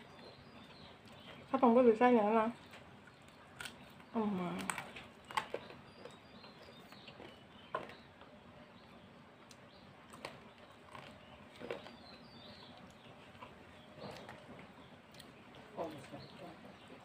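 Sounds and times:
chewing mouth clicks and smacks: 0:09.4 - 0:15.7.

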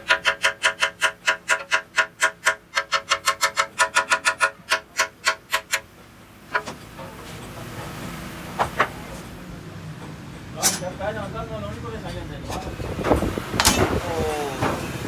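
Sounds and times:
hammer striking metal: 0:00.0 - 0:05.9.

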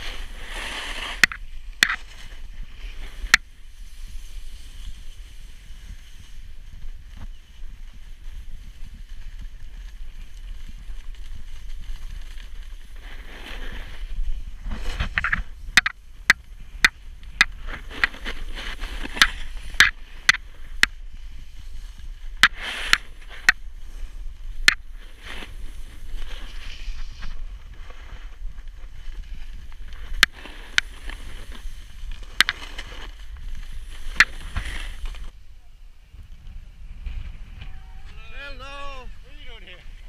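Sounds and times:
snowboard edge scraping snow: 0:00.0 - 0:35.4, 0:36.2 - 0:40.0
snowboard sliding on snow: 0:00.0 - 0:35.4, 0:36.0 - 0:40.0
wind on microphone: 0:00.0 - 0:40.0.

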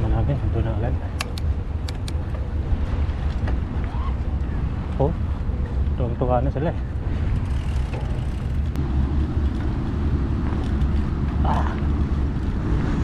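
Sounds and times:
wind buffeting microphone: 0:00.0 - 0:13.0
bike tyres rolling on dirt: 0:06.7 - 0:12.5.

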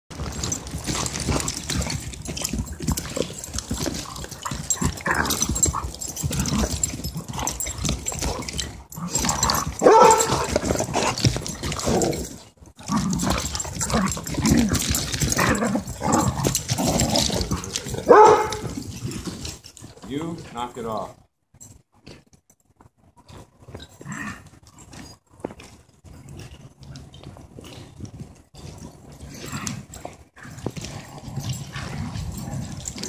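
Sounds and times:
dogs growling and yipping: 0:00.2 - 0:19.6, 0:23.2 - 0:25.2, 0:28.7 - 0:33.0.

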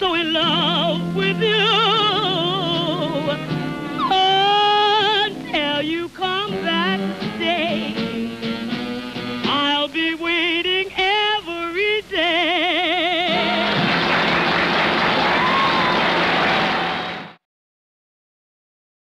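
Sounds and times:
woman singing with vibrato: 0:00.0 - 0:08.2, 0:09.5 - 0:13.8
band backing chords: 0:00.0 - 0:09.9, 0:13.2 - 0:17.3.

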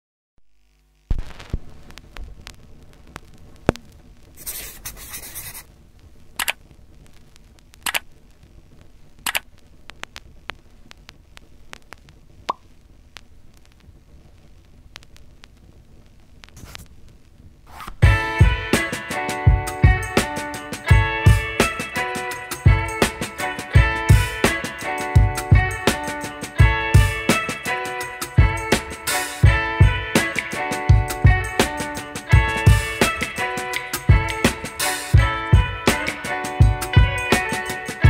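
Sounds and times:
guitar music: 0:18.0 - 0:38.0.

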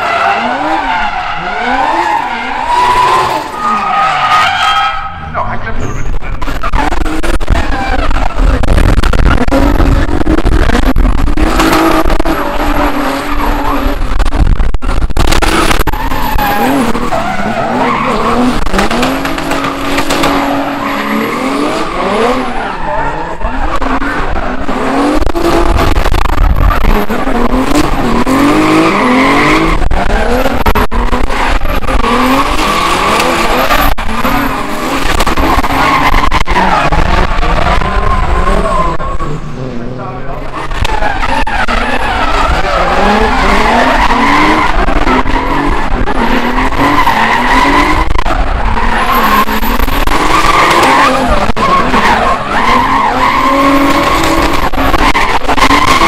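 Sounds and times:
car engines revving hard: 0:00.0 - 0:56.0.

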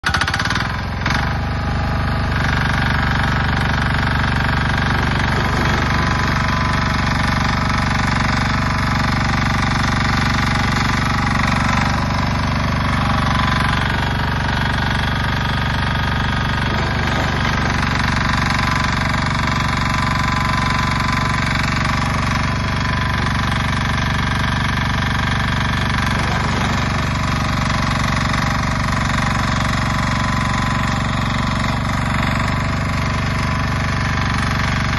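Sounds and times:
diesel engine running: 0:00.0 - 0:34.9
shovel scraping and loading: 0:04.5 - 0:07.5, 0:16.3 - 0:19.2.

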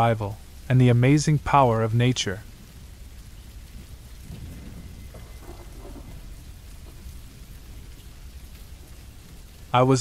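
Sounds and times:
steady rain: 0:00.0 - 0:10.0
low thunder rumble: 0:02.4 - 0:09.8.

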